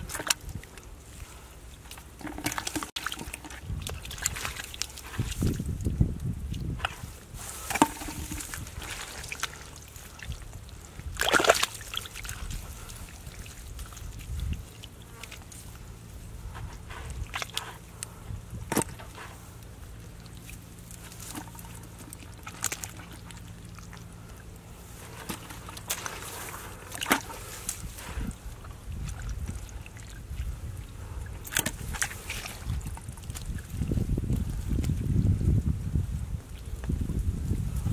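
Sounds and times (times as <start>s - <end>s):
hands sloshing through muddy water: 0.0s - 37.9s
sharp splashes: 1.9s - 5.7s, 6.7s - 15.6s, 18.6s - 33.6s.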